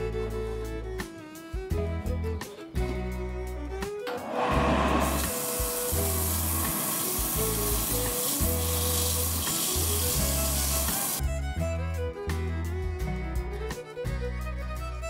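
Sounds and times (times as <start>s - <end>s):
background music: 0.0s - 15.0s
sandpaper hissing on spinning wood: 4.3s - 11.2s.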